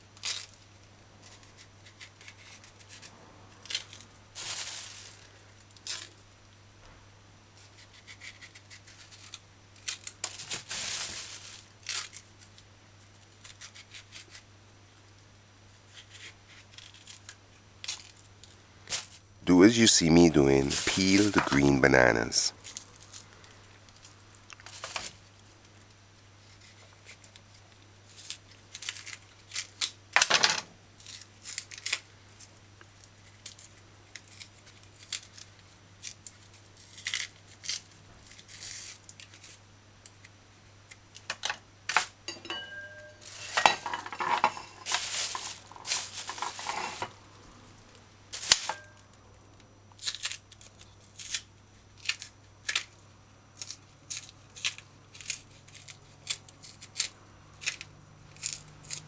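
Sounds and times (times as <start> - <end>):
faint low hum: 0.0 - 59.0
banana skins tearing by hand: 1.2 - 6.2, 7.6 - 14.5, 15.8 - 19.2, 20.4 - 25.8, 26.4 - 30.3, 31.0 - 42.1, 50.0 - 59.0.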